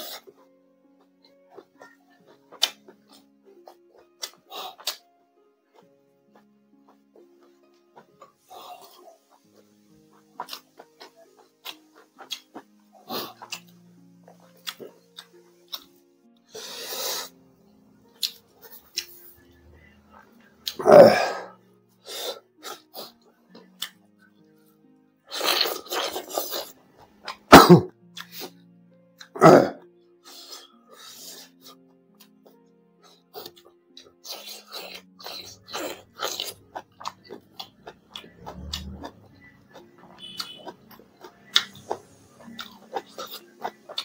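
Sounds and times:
faint background music: 0.0 - 44.0
mouth clicks from chewing: 1.2 - 5.0, 14.3 - 15.9, 18.2 - 19.2, 28.2 - 28.6, 33.1 - 44.0
man coughing: 27.5 - 27.9
man sneezing: 27.5 - 27.9.

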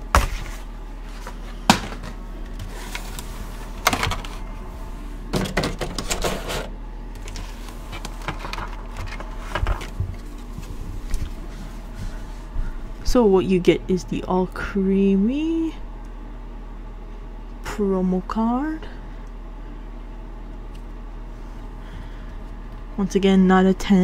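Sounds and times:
crinkling and rustling: 0.1 - 12.5.

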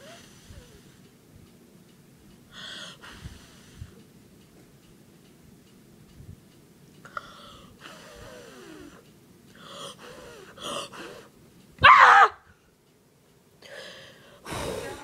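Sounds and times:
person gasping and whimpering: 13.7 - 15.0.

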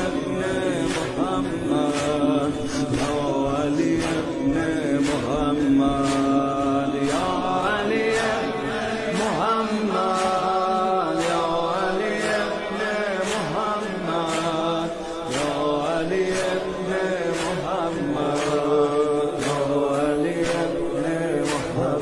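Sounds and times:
faint steady beat: 0.0 - 22.0
male voices chanting a lament: 0.0 - 22.0.

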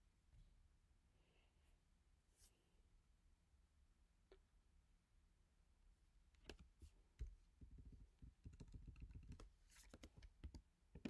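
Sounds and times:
keyboard typing and clicking: 7.6 - 11.0.

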